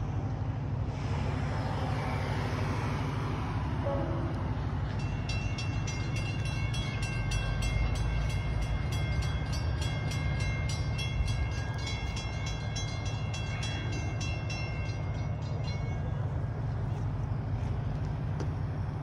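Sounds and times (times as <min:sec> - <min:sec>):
steady low rumble: 0:00.0 - 0:19.0
crossing bell ringing: 0:03.9 - 0:17.5.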